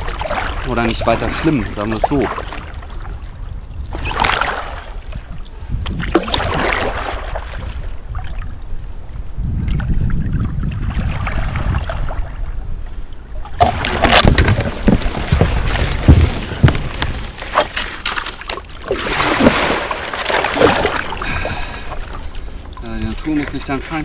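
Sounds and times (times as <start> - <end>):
kayak paddle splashing in water: 0.0 - 8.4, 13.4 - 24.0.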